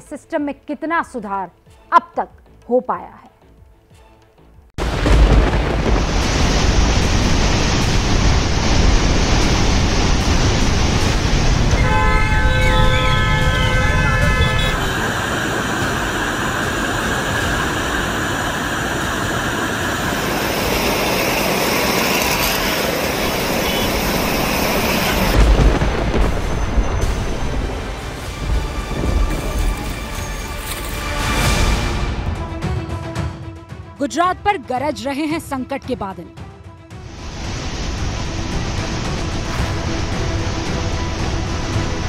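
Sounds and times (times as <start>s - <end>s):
deep boom: 4.8s - 8.9s, 25.3s - 29.6s
floodwater rushing: 4.8s - 31.9s
horn-like tone: 11.7s - 15.6s, 23.2s - 25.4s.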